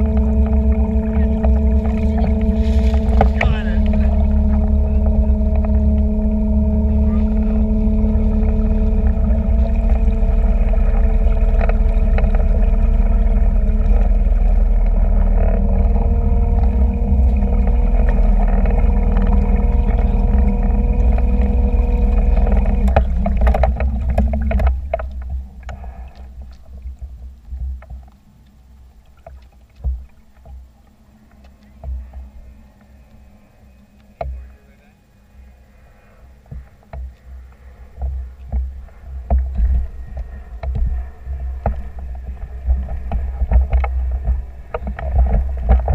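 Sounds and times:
small boat motor running: 0.0s - 45.9s
water splashing and lapping: 0.0s - 45.9s.

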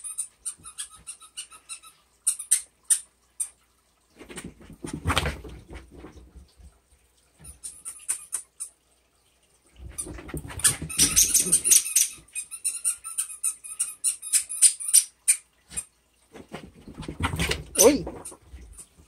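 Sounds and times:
dog scuffling and thumping: 4.2s - 6.7s, 9.8s - 11.8s, 16.3s - 18.9s.

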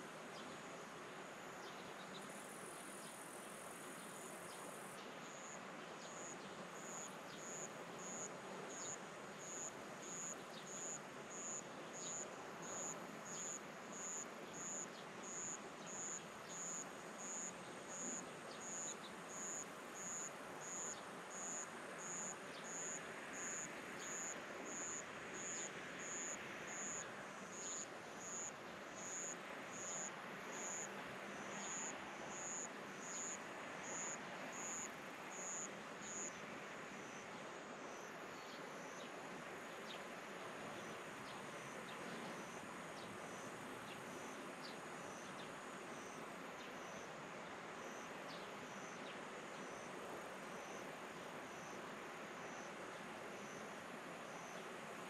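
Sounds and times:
quiet open-air ambience: 0.0s - 55.0s
insect chirping rhythmically: 27.6s - 36.4s.

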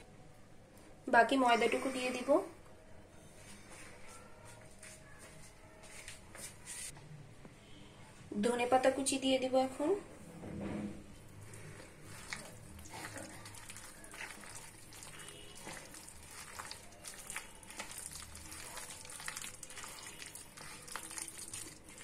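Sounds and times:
hand squishing wet batter: 11.2s - 22.0s.

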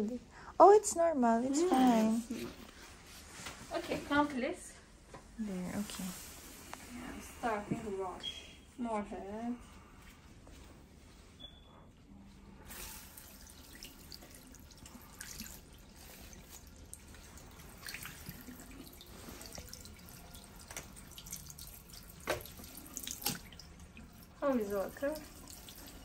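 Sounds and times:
tap water splashing into basin: 13.0s - 26.0s.

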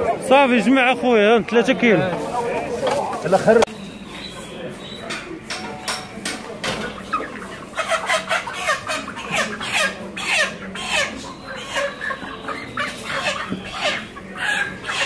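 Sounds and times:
chickens clucking and squawking: 0.0s - 15.0s.

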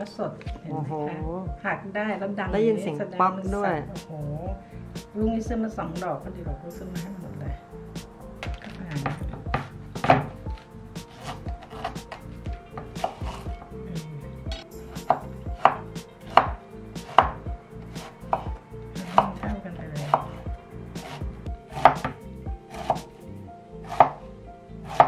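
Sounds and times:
knife cutting on wooden board: 8.4s - 13.7s, 14.5s - 24.2s.

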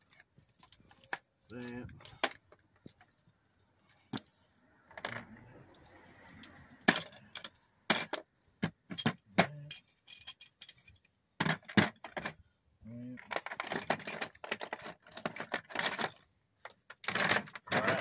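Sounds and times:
metal tools clinking: 0.5s - 3.2s, 8.9s - 12.4s, 13.1s - 18.0s.

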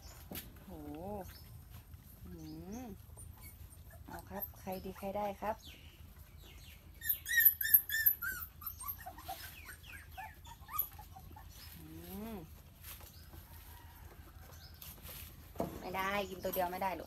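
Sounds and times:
puppies whining and yelping: 2.8s - 5.2s, 6.0s - 11.8s.

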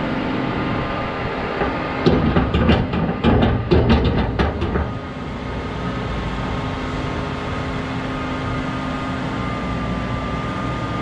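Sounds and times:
machine running steadily: 0.0s - 11.0s.

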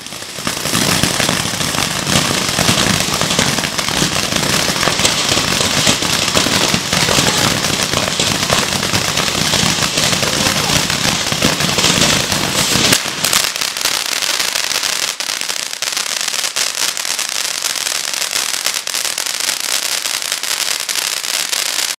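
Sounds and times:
firework fountain hissing and crackling: 0.0s - 22.0s.

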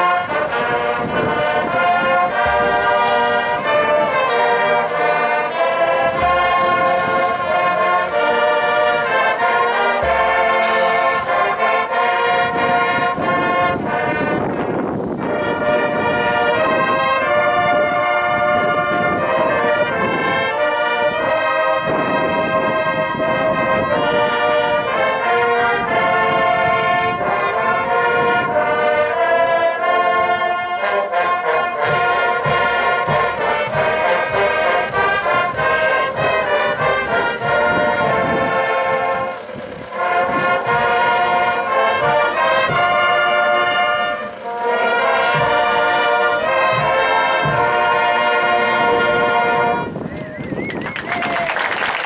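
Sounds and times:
brass band melody: 0.0s - 52.0s
drum and cymbal strokes: 2.4s - 3.6s.

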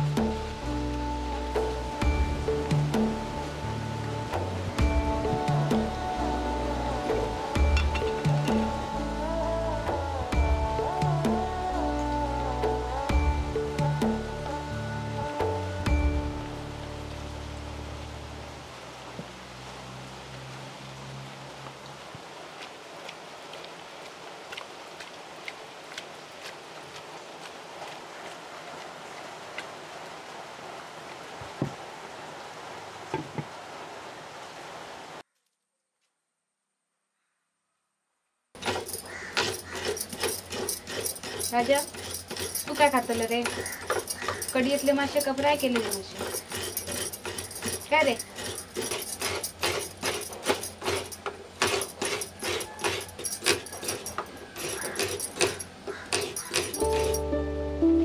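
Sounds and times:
steady rain falling: 0.0s - 35.2s, 38.6s - 58.0s
glass bangles clinking: 7.6s - 8.7s, 38.6s - 57.3s
water drips: 15.9s - 31.9s, 38.8s - 57.3s.

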